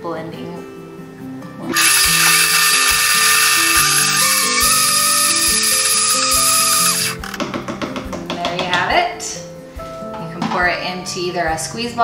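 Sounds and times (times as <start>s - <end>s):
blender motor whine: 1.7s - 7.4s
background music with steady beat: 4.6s - 12.0s.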